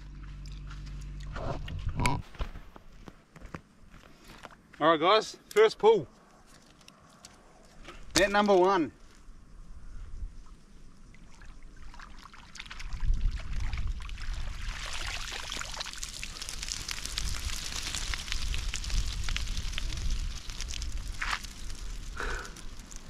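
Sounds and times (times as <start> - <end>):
water pouring and dripping from net: 11.1 - 23.0.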